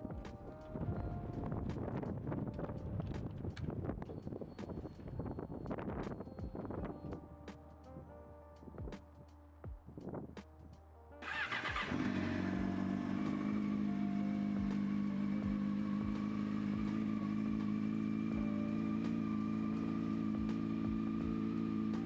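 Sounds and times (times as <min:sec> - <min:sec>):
motorcycle engine starting and idling: 0:11.2 - 0:22.0.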